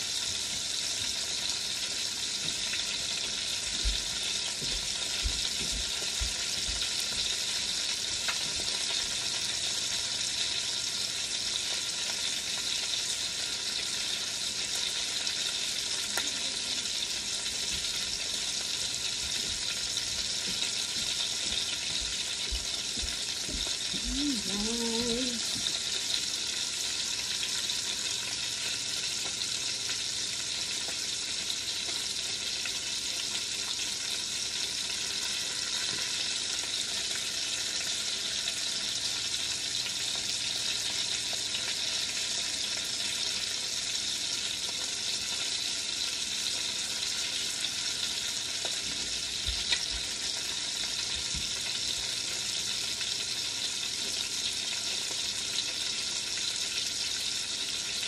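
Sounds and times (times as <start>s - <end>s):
chicken sizzling in a pot: 0.0s - 58.0s.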